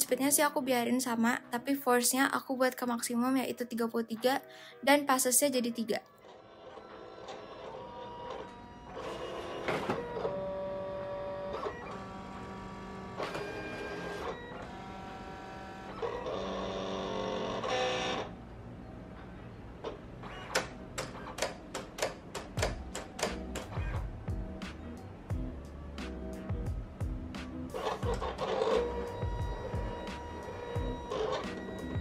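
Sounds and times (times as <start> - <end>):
cutting machine motors whining: 6.2 - 21.4, 27.7 - 32.0.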